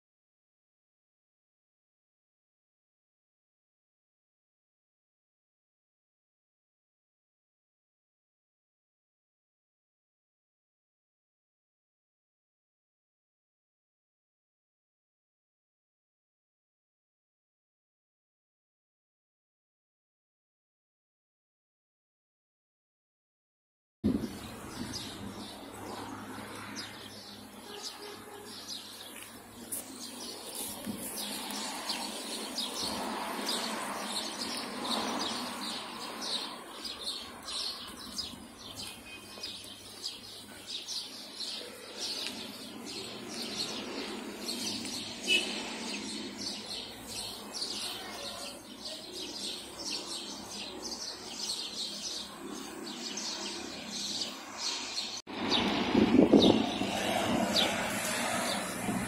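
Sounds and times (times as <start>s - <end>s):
outdoor background noise: 24.0s - 59.0s
small birds chirping: 24.1s - 59.0s.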